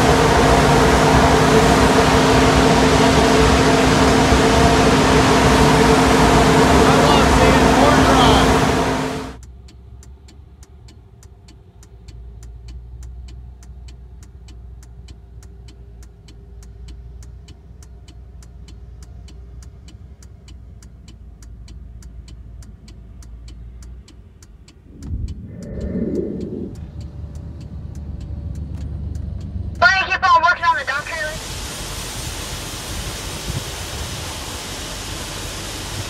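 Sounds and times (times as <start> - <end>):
vehicle engine rumbling: 0.0 - 36.0
light regular ticking: 9.4 - 29.8.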